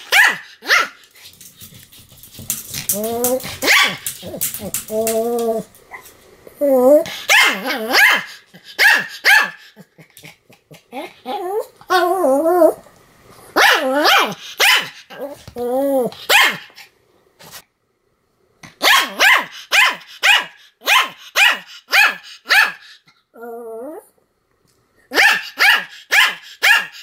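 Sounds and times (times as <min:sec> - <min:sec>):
dog barking: 0:00.0 - 0:00.9, 0:03.6 - 0:04.0, 0:07.3 - 0:09.6, 0:13.6 - 0:15.0, 0:16.3 - 0:16.7, 0:18.8 - 0:22.8, 0:25.1 - 0:27.0.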